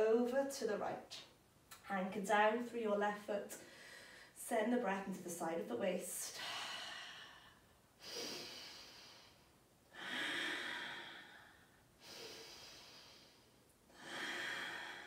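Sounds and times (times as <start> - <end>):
woman breathing deeply: 3.6 - 4.4, 6.4 - 15.0.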